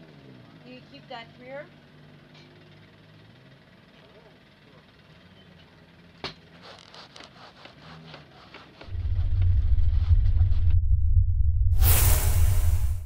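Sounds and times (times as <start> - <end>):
deep rumble sound effect: 8.9 - 13.0
loud hiss: 11.8 - 13.0.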